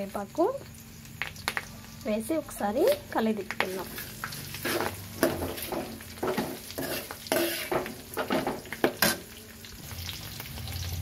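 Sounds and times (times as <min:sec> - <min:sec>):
hot oil sizzling: 0:00.0 - 0:11.0
metal spatula scraping pan: 0:03.8 - 0:09.3.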